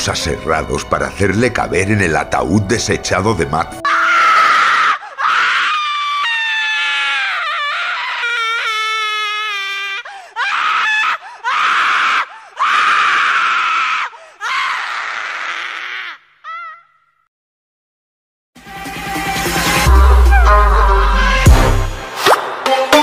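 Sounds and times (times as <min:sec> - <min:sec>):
person screaming: 0:03.8 - 0:17.0, 0:20.0 - 0:21.2.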